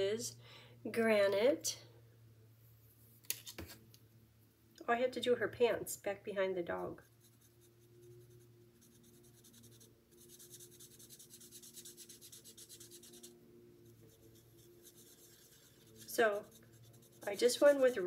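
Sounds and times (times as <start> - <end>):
marker scratching on cardstock: 7.0 - 18.0.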